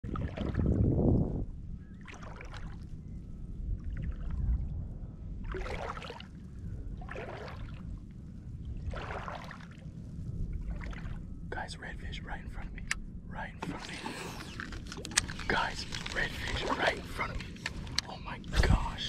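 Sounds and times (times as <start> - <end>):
legs wading through water: 0.0 - 0.8, 2.0 - 3.0, 5.4 - 8.0, 8.7 - 11.3, 13.6 - 18.5
wind rumble on microphone: 0.0 - 19.0.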